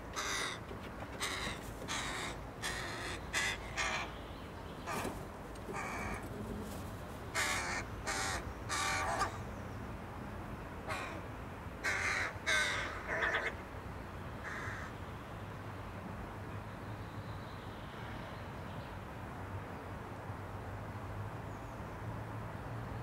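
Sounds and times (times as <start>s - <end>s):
crows cawing: 0.2s - 4.1s, 4.9s - 6.5s, 7.3s - 9.4s, 10.9s - 13.6s, 14.4s - 15.0s.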